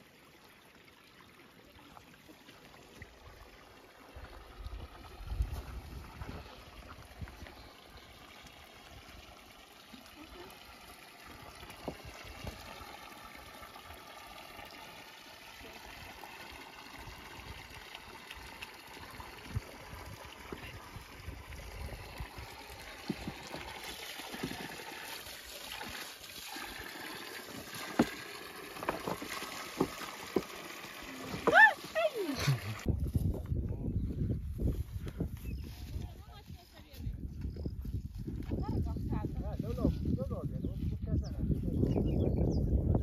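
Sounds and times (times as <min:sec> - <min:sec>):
water from hose splashing on rocks: 0:01.7 - 0:32.9.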